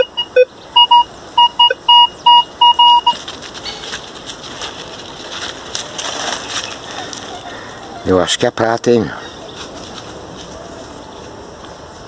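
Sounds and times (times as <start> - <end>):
metal detector beeping: 0.0 - 3.2
leaf litter rustling and crackling: 3.1 - 7.9.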